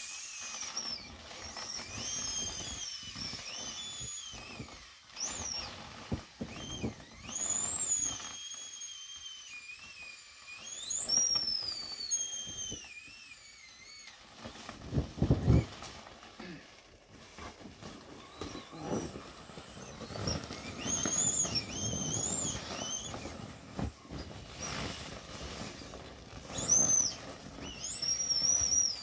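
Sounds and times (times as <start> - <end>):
inflatable toy squealing: 0.0 - 29.0
vinyl rustling: 14.2 - 29.0.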